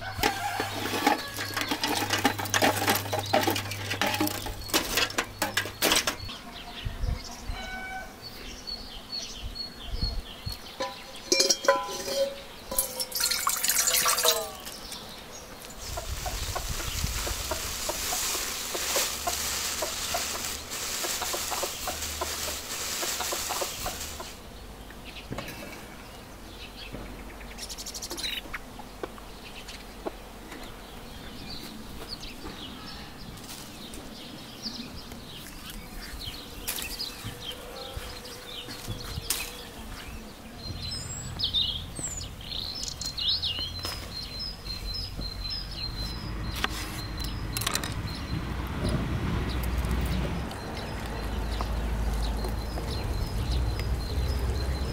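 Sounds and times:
chickens calling: 0.0 - 9.1, 9.8 - 54.9
small birds calling: 0.0 - 54.9
spoon clinking on bowl: 10.8 - 14.6
water pouring into bowl: 12.8 - 14.7.

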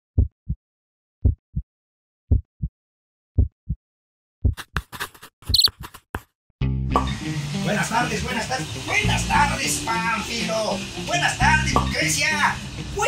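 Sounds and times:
heartbeat thumps: 0.2 - 0.6, 1.2 - 1.7, 2.3 - 2.7, 3.4 - 3.8, 4.4 - 4.6.

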